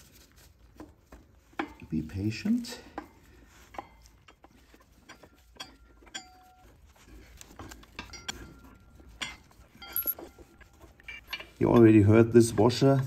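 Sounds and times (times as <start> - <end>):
metallic clinks of tools on parts: 5.1 - 6.7, 7.9 - 12.0.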